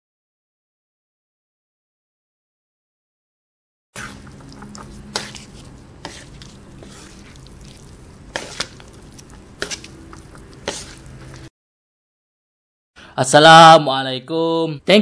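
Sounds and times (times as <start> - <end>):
spoons stirring noodles: 4.0 - 11.5.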